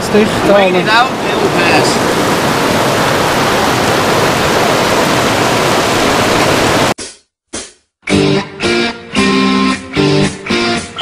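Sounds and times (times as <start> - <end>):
heavy rain on a floatplane: 0.0 - 7.0.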